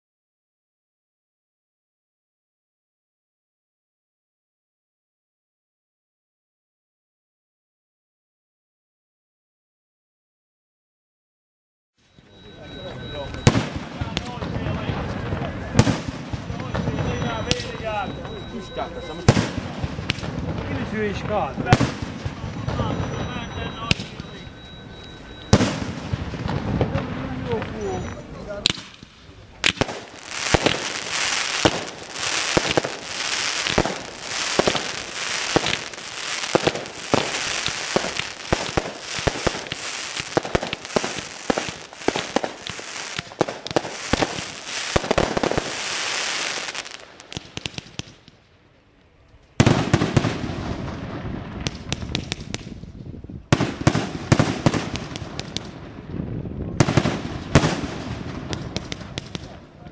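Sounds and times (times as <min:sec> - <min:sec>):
fireworks firing rapid bangs: 0:12.6 - 0:48.4, 0:49.6 - 0:52.8, 0:53.5 - 0:59.7.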